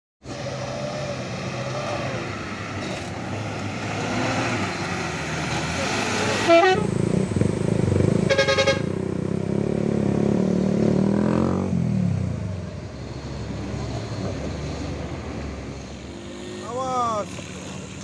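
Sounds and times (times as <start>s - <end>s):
vehicle engines running: 0.2s - 18.0s
vehicle horn: 6.3s - 6.9s, 8.3s - 9.0s.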